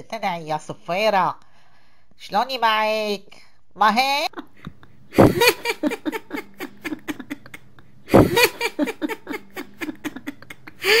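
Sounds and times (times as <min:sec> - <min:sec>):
woman laughing heartily: 0:04.3 - 0:11.0.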